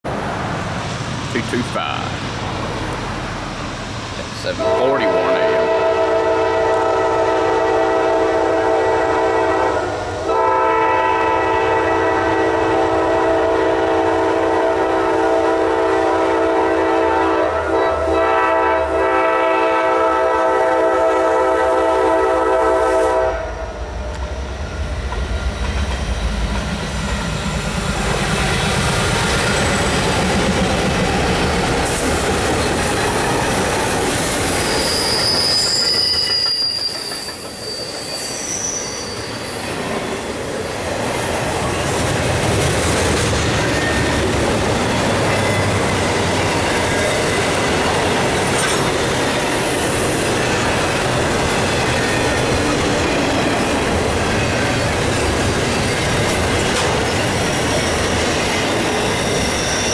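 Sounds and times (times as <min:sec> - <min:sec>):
diesel locomotives passing: 0:00.0 - 0:59.9
locomotive air horn blasts: 0:04.5 - 0:23.8
train wheels clattering over rails: 0:24.0 - 0:38.1, 0:39.1 - 0:59.9.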